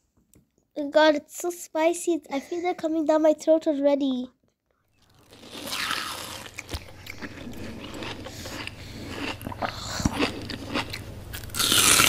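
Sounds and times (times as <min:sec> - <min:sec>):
people chewing noodles: 0:05.0 - 0:12.0.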